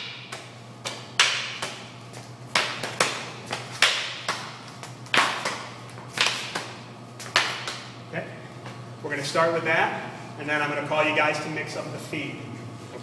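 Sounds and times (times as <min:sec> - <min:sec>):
stick slapping against hand: 0:00.0 - 0:05.6, 0:06.2 - 0:07.8.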